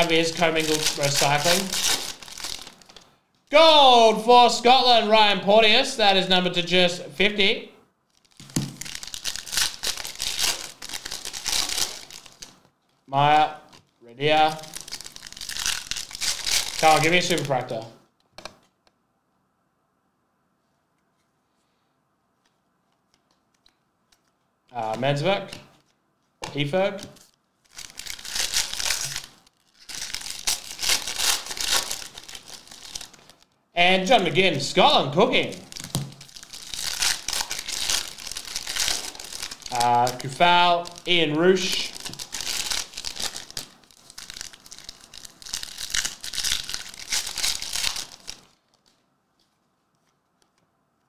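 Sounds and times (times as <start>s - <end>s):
plastic wrapping crinkling and tearing: 0.0s - 5.0s, 8.1s - 17.9s, 27.0s - 50.6s.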